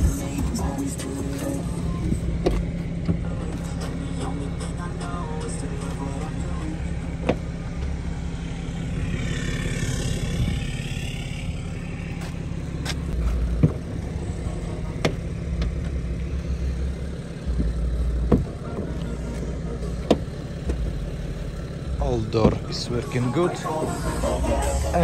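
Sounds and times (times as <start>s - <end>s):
wind rumbling on microphone: 9.0s - 11.9s.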